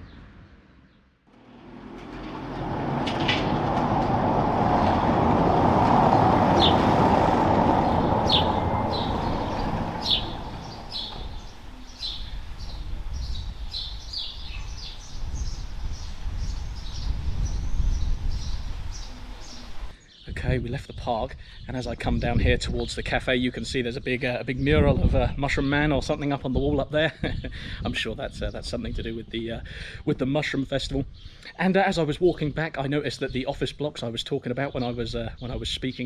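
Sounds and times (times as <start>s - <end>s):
vehicle passing by: 1.3s - 12.6s
low outdoor rumble: 1.3s - 13.9s
birds chirping: 2.1s - 24.8s.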